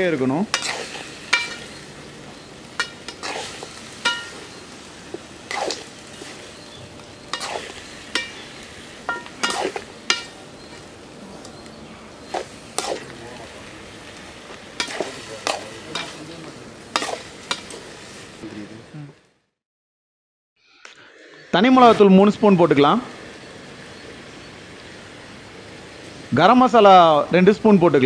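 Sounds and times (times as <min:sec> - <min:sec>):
food sizzling in oil: 0:00.0 - 0:19.0, 0:21.6 - 0:27.7
metal spatula scraping a pan: 0:00.5 - 0:04.6, 0:05.5 - 0:10.8, 0:16.9 - 0:17.9.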